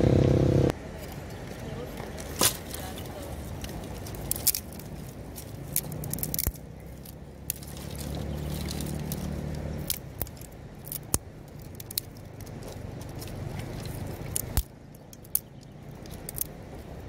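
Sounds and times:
low steady rumble: 0.0s - 17.0s
twigs snapping and clicking: 2.0s - 17.0s.

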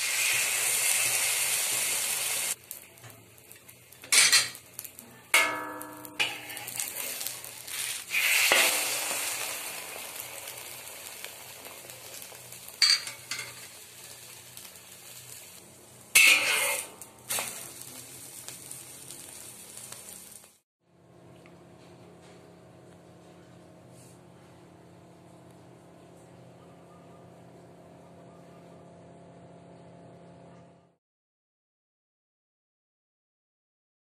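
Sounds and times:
omelette sizzling in a pan: 0.0s - 20.6s
utensil scraping against pan: 5.8s - 8.7s, 16.2s - 17.5s.

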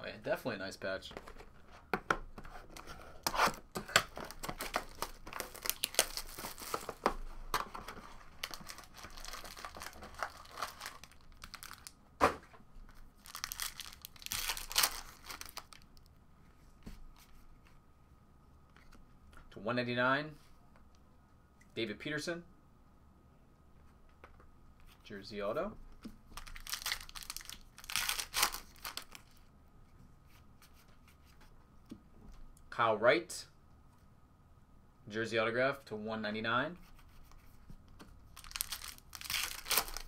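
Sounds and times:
plastic and foil wrapping ripping: 4.3s - 6.8s, 8.4s - 11.9s, 13.2s - 15.8s, 26.4s - 29.2s, 38.4s - 40.0s.

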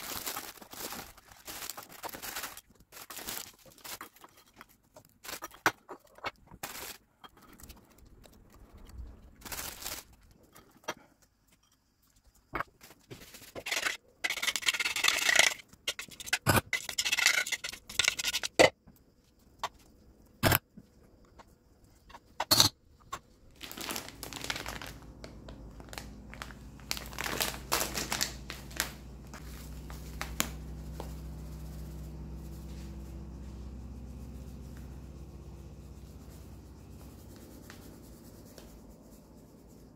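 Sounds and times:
plastic packet crinkling: 0.0s - 5.6s, 6.5s - 7.1s, 9.3s - 10.4s, 23.5s - 31.1s
faint steady hum: 0.0s - 39.9s.

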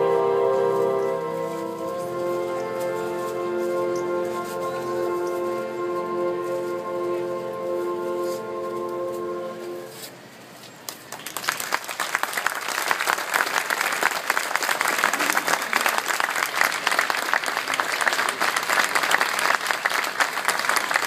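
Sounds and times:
audience applauding: 11.1s - 21.0s.

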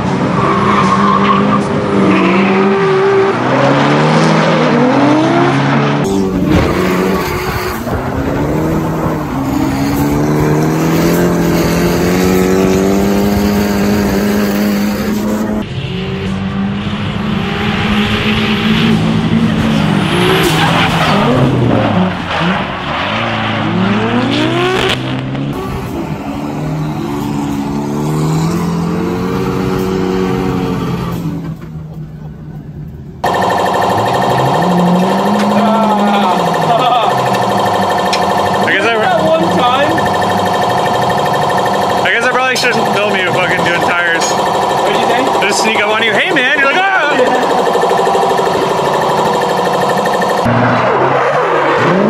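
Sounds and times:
car engines revving high: 0.0s - 31.7s, 33.2s - 52.0s
tyre squeal and skidding: 0.2s - 2.9s.

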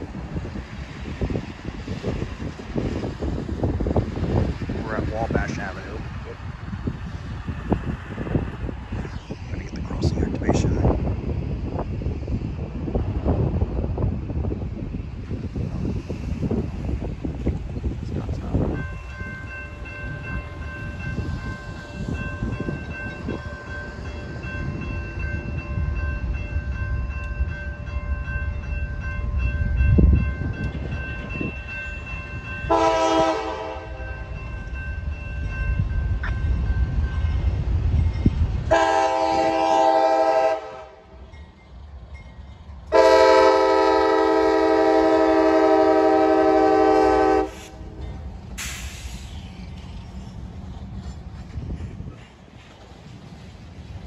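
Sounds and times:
railroad crossing bell ringing: 18.2s - 48.4s
locomotive horn chord: 32.7s - 34.1s, 38.7s - 41.1s, 42.9s - 47.9s.

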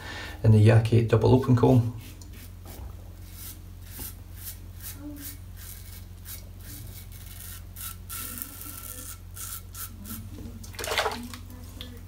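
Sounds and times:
razor scraping stubble: 2.0s - 10.6s
water splashing: 10.7s - 11.4s.

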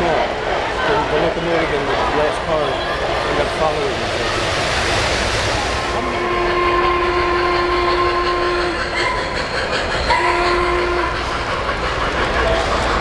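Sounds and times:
train cars rolling on track: 0.0s - 13.0s
model train whistle: 6.0s - 9.4s, 10.0s - 11.4s.

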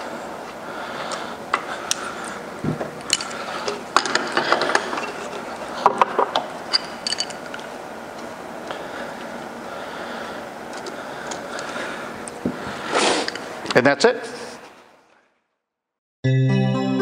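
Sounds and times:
steady background noise: 0.0s - 15.2s
wrench metal clicks and clinks: 6.7s - 7.6s.

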